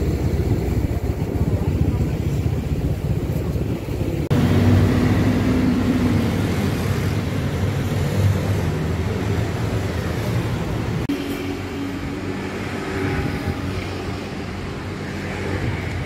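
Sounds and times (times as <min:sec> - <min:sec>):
low engine hum: 0:00.0 - 0:11.1
cars and motorcycles passing: 0:00.0 - 0:16.0.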